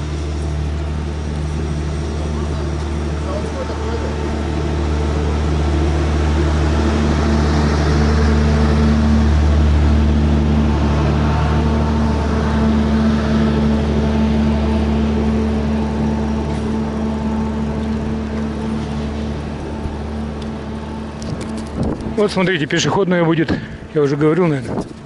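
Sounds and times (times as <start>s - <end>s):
wind rumbling on microphone: 16.6s - 25.0s.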